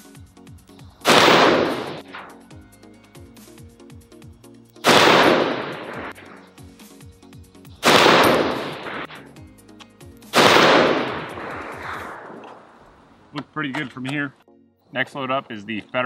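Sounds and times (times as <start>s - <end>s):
rifle shots: 1.0s - 2.4s, 4.8s - 6.4s, 7.8s - 9.2s, 10.3s - 12.9s.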